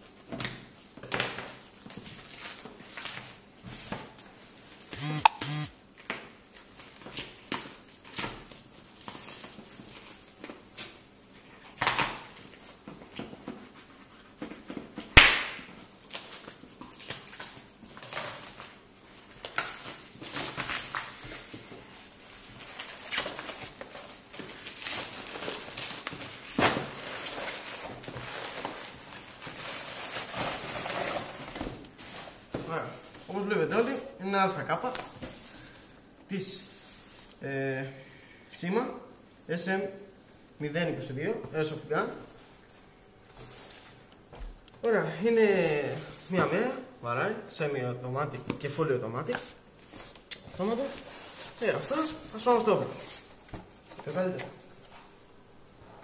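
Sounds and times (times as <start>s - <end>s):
sharp crack: 15.2s - 15.6s
plastic wrapping tearing and crinkling: 15.2s - 31.5s.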